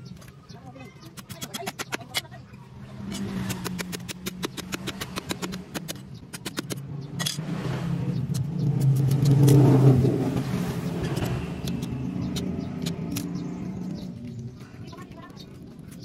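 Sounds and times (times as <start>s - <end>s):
vehicle engine passing by: 2.6s - 5.8s, 6.8s - 15.0s.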